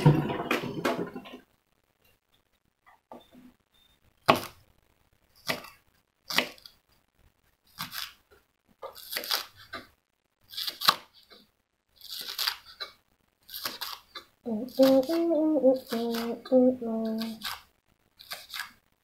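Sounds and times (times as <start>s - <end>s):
knife slicing leaves: 8.9s - 9.9s, 12.0s - 12.9s, 13.5s - 15.2s, 18.2s - 18.8s.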